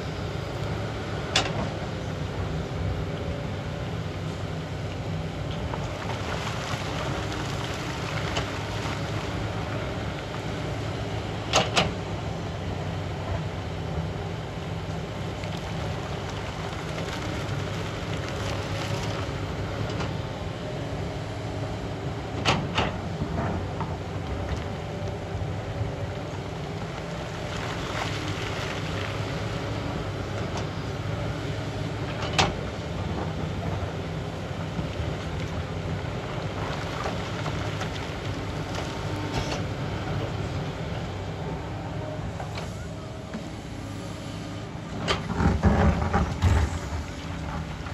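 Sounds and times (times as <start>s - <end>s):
excavator diesel engine: 0.0s - 47.9s
rock rattling and pouring: 45.5s - 47.9s.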